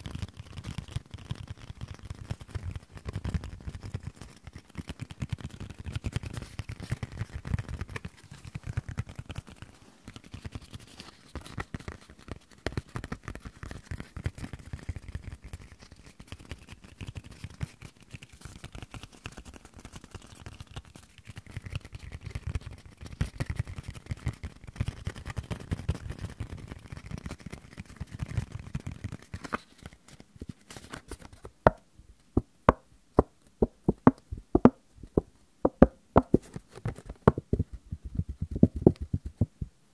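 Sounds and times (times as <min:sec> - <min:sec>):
paper rustling and crinkling: 0:24.8 - 0:31.6
sharp taps: 0:32.4 - 0:36.6, 0:37.2 - 0:37.8.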